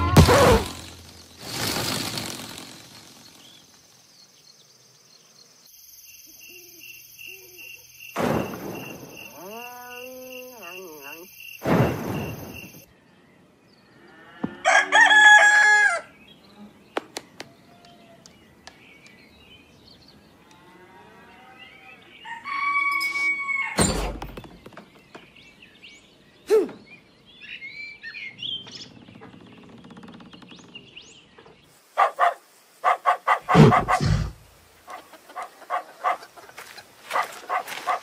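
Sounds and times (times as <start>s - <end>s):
rooster crowing: 14.4s - 16.1s, 22.2s - 23.8s.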